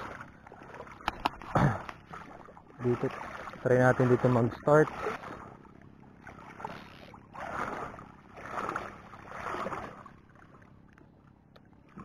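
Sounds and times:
shallow seawater splashing: 0.0s - 11.0s.

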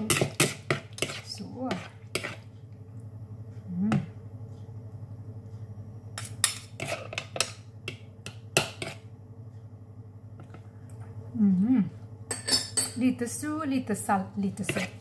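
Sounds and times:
spoons scraping plastic bowl: 0.0s - 2.5s, 6.7s - 7.5s, 14.6s - 15.0s.

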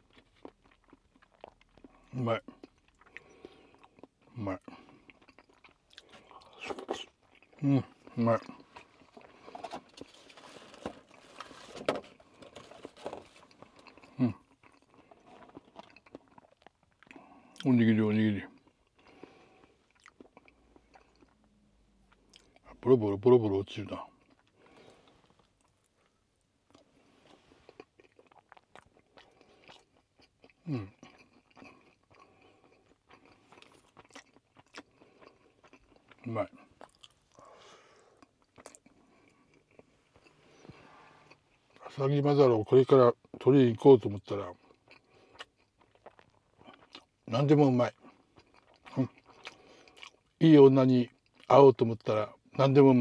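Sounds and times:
man chewing food: 0.0s - 17.7s, 18.5s - 22.8s, 24.1s - 42.0s, 44.5s - 47.3s, 47.9s - 50.4s, 51.1s - 51.5s
plastic bags and packaging rustling: 8.7s - 13.8s.

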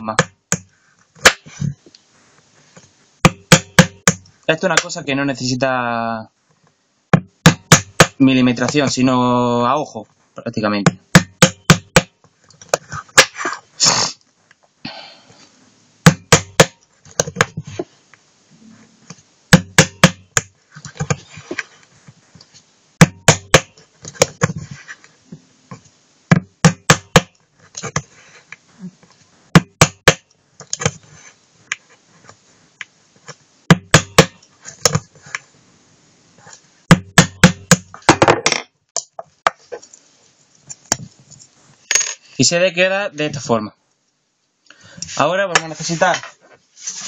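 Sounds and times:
hammer tapping nail into metal: 3.2s - 4.9s, 10.9s - 12.1s, 16.1s - 17.5s, 19.6s - 20.5s, 23.0s - 23.8s, 36.9s - 37.9s.

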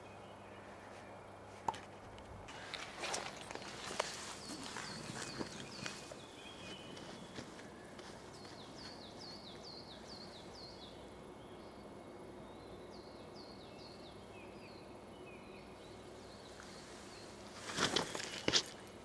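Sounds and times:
small songbird singing: 2.5s - 18.7s
footsteps scuffing and thumping: 2.6s - 9.7s, 17.6s - 18.8s.

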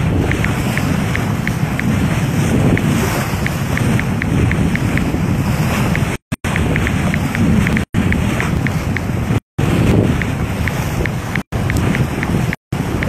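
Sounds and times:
water rushing past boat bow: 0.0s - 13.0s
wind buffeting the microphone: 0.0s - 13.0s
faint high ticking: 5.9s - 9.1s.

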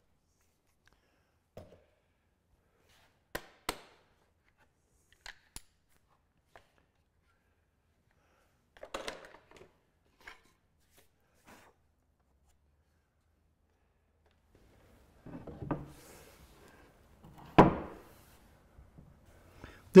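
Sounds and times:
wooden knocks and scrapes: 15.2s - 16.3s.

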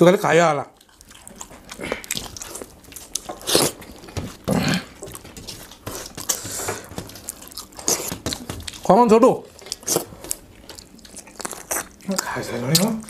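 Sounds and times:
wet chewing and smacking: 0.6s - 13.0s
loud breaths: 5.9s - 7.0s.

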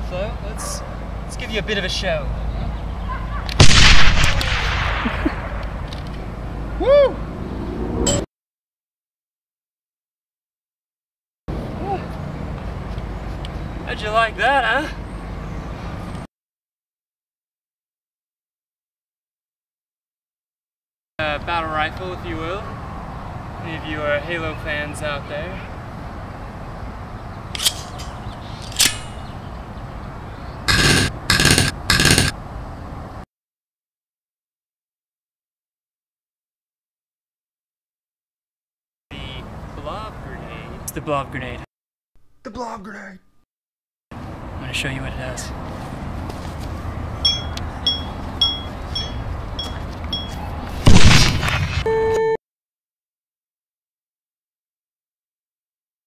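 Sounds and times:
rifle fire bursts: 3.6s - 5.1s, 30.7s - 32.3s, 50.9s - 51.9s
loud explosion: 3.6s - 5.6s, 50.9s - 51.9s
sharp ringing clicks: 30.7s - 32.4s, 47.3s - 50.4s
steady test tone: 47.2s - 50.3s.

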